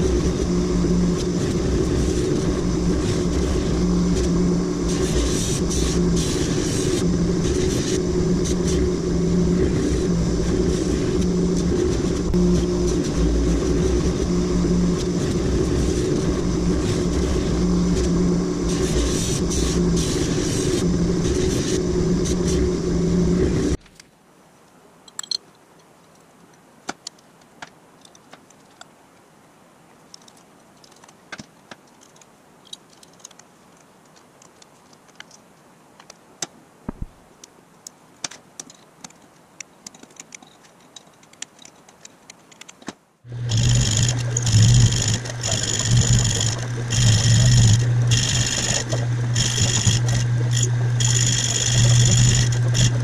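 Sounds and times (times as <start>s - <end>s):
metal lathe humming: 0.0s - 23.8s, 43.3s - 53.0s
faint clicks and handling noise: 23.8s - 29.3s, 29.9s - 43.1s
bench grinder running: 43.3s - 53.0s.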